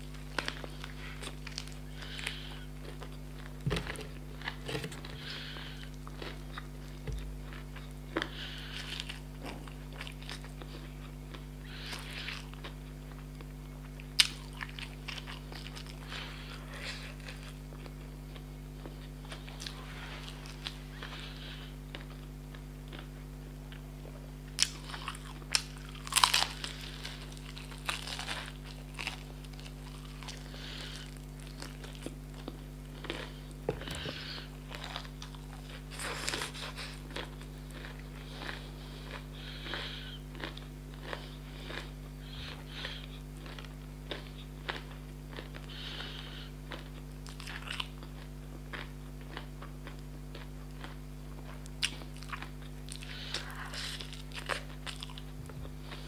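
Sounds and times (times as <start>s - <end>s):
low electrical hum: 0.0s - 56.0s
chewing and mouth sounds: 0.1s - 21.2s, 24.6s - 56.0s
crunchy bites into fried chicken: 24.5s - 37.5s.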